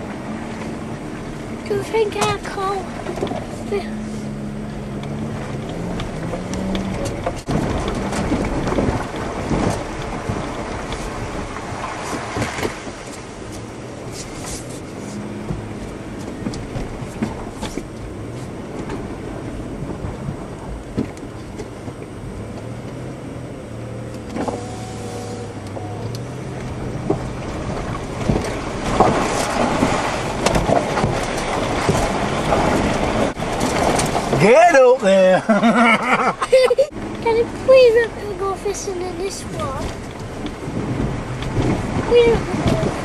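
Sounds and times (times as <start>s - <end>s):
low engine hum: 0.0s - 43.0s
tyre and road noise: 0.0s - 43.0s
knocks and rattles: 26.6s - 34.6s.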